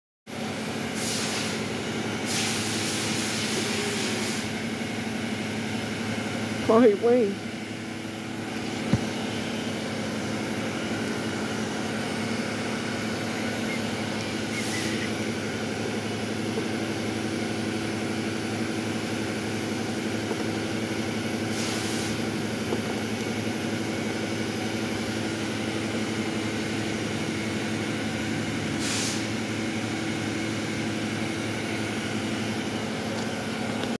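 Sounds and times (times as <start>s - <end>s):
short air hisses: 0.9s - 4.5s, 13.5s - 15.2s, 21.5s - 22.2s, 28.8s - 29.4s
machine hum: 4.6s - 34.0s.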